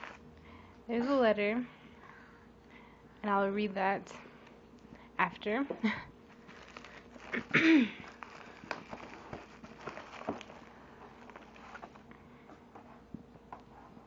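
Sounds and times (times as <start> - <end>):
bubble wrap crinkling: 0.0 - 0.2, 6.2 - 12.1.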